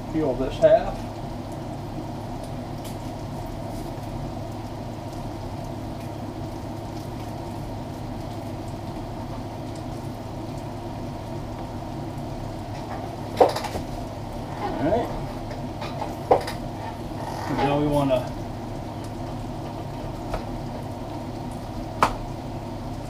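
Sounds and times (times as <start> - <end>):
stew bubbling in a pot: 0.0 - 23.0.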